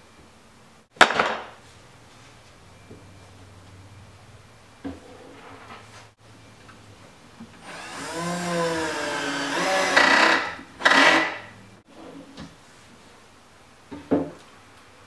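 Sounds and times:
drill driving screw: 7.6s - 11.5s.

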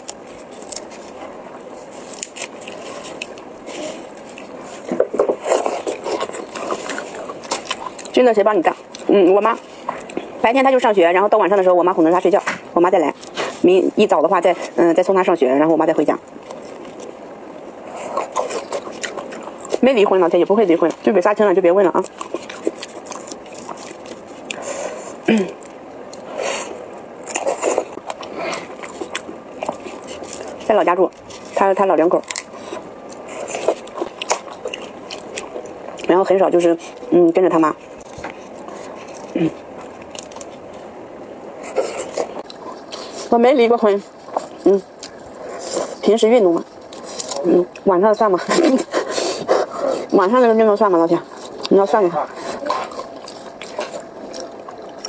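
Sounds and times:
shrimp shell peeling crackles: 0.0s - 10.3s, 18.1s - 35.8s, 37.9s - 41.0s
wet chewing: 0.0s - 55.0s.

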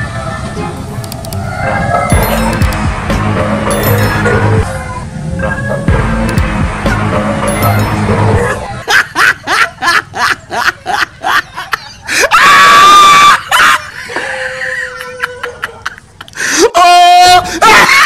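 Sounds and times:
background music: 0.4s - 8.9s
wavering scream: 1.3s - 2.5s, 12.1s - 15.6s
snickering laughs: 8.4s - 12.3s, 13.4s - 16.4s, 17.5s - 18.0s.

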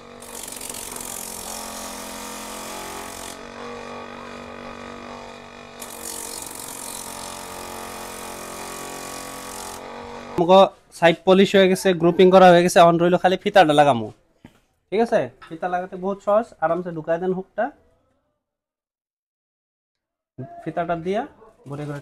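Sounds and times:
polishing machine motor hum: 0.0s - 10.4s
sole grinding on sanding wheel: 0.0s - 10.4s.

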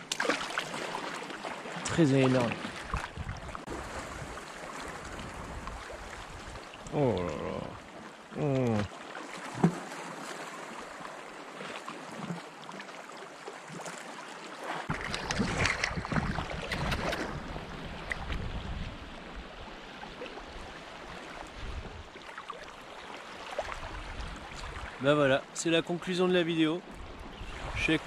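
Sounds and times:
splashy strokes in water: 0.0s - 5.2s, 13.6s - 18.1s
seawater lapping at shore: 0.0s - 28.0s
wind rumbling on microphone: 2.8s - 7.8s, 14.9s - 22.1s, 23.7s - 25.0s, 26.9s - 28.0s.

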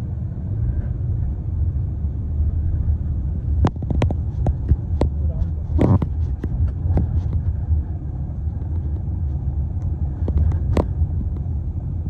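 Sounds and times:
moving car rumble: 0.0s - 12.0s.

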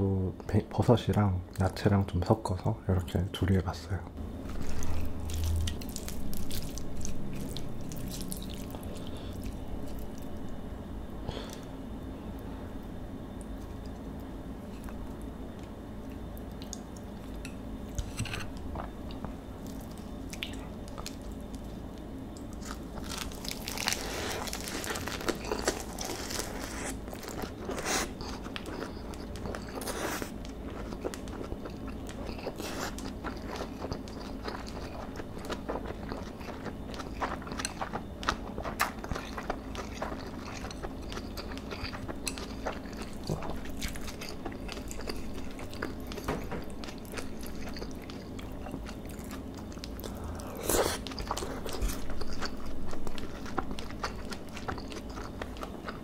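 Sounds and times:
lettuce crunching: 22.5s - 56.0s.

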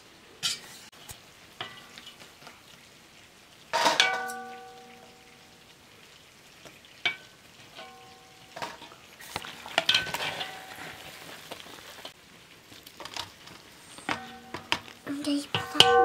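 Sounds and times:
metal ladle scraping iron pot: 7.1s - 11.3s, 13.9s - 14.9s.

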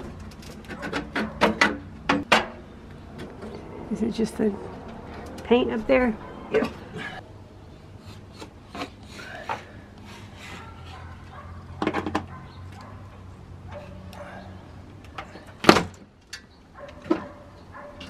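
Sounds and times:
hand tool scraping wood: 8.0s - 11.3s.

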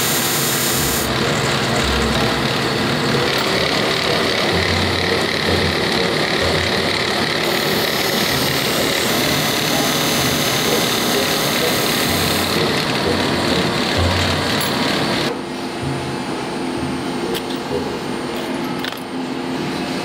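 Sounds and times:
metal grinding hiss: 0.0s - 15.3s
bench grinder running: 0.0s - 15.4s.

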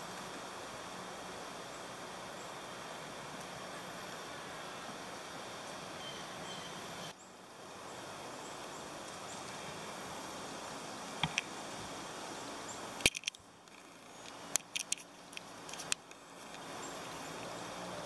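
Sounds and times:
forest ambience: 0.0s - 18.0s
faint high bird chirps: 5.9s - 7.4s
sharp snaps and clicks: 11.2s - 11.5s, 13.0s - 16.7s.

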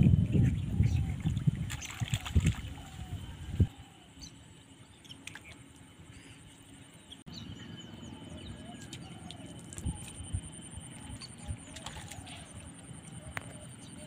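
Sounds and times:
steady high background tone: 3.0s - 14.0s.

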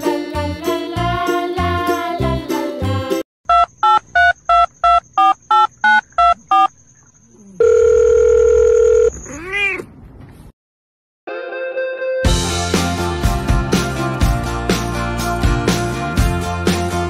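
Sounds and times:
touch-tone keypad beeps: 3.5s - 6.7s
steady telephone tone: 3.5s - 9.2s.

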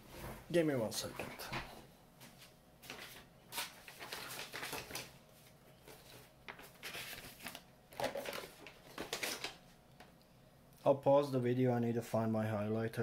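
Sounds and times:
rummaging through art supplies: 5.8s - 9.6s.

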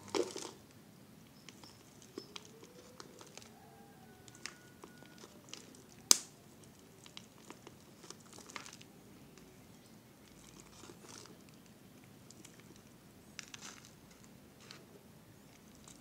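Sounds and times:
plastic bottle crinkling: 0.0s - 0.6s.

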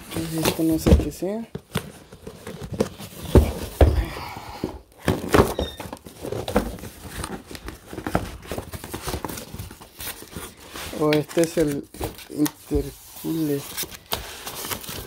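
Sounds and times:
cardboard knocks and rustling: 0.3s - 9.9s
heavy thumps: 3.2s - 5.6s.

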